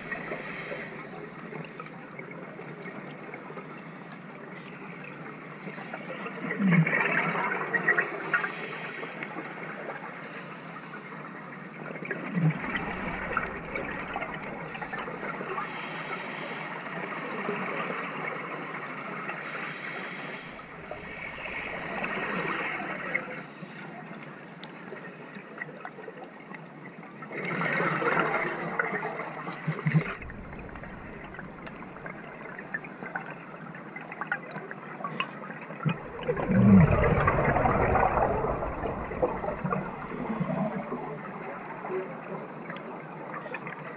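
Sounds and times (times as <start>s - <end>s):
steady underwater hiss: 0.0s - 26.3s, 27.2s - 43.9s
breath bubbles gushing underwater: 12.1s - 15.7s, 29.6s - 33.4s, 35.0s - 41.8s.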